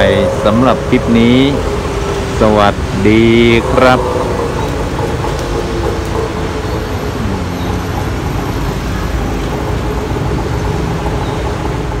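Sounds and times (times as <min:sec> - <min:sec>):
city road traffic: 0:00.0 - 0:12.0.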